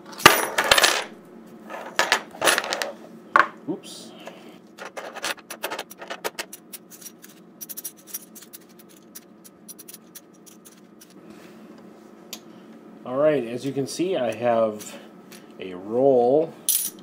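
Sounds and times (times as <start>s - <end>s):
coins clicking and clinking: 4.8s - 11.1s, 16.7s - 17.0s
light scraping of coins: 4.8s - 11.2s.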